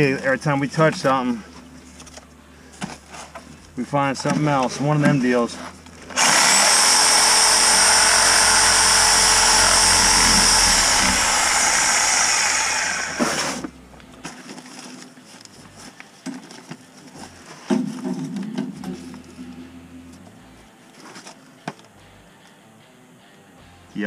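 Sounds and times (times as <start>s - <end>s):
reciprocating saw cutting iron pipe: 6.1s - 13.6s.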